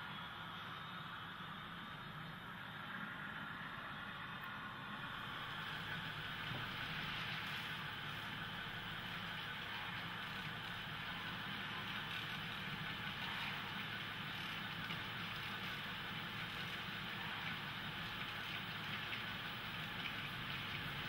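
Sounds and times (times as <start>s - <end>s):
model train humming: 0.0s - 21.0s
wheels rattling on track: 5.2s - 21.0s.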